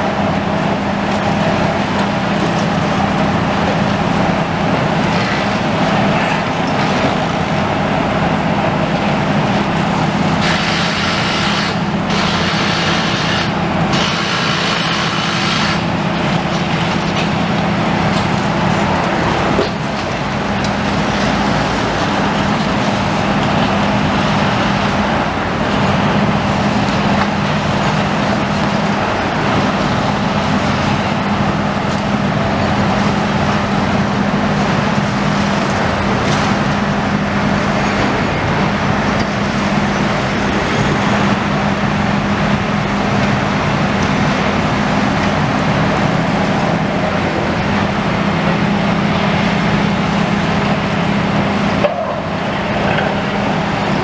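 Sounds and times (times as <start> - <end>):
constant rushing noise: 0.0 - 54.0
excavator engines humming: 0.0 - 54.0.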